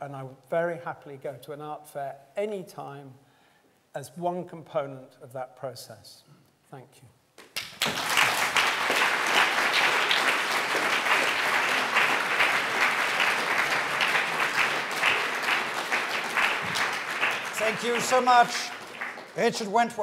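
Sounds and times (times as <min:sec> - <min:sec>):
audience applauding: 0:07.4 - 0:20.0.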